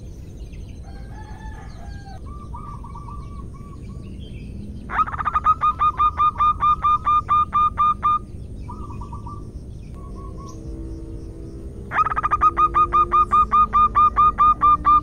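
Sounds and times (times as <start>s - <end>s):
dove calling in rapid short notes: 4.9s - 9.4s, 11.9s - 15.0s.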